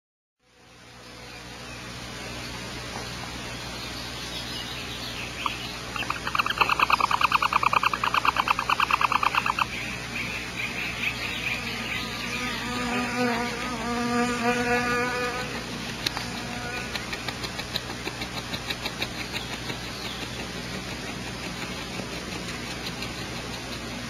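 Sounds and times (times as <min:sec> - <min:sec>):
low even buzz: 0:00.4 - 0:24.0
barn owls chittering clicks: 0:05.3 - 0:10.3, 0:15.8 - 0:24.0.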